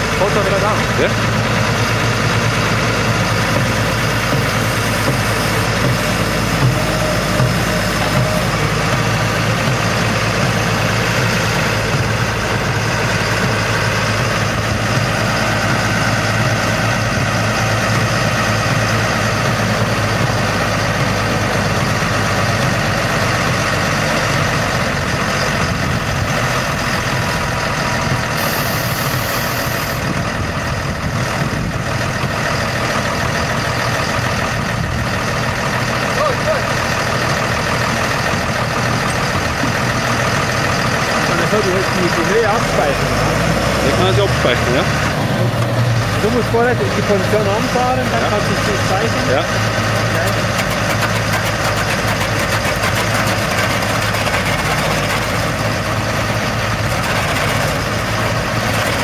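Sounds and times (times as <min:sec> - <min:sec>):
tractor diesel engine: 0:00.0 - 0:59.0
rotor crushing stone: 0:02.9 - 0:10.8, 0:49.1 - 0:59.0.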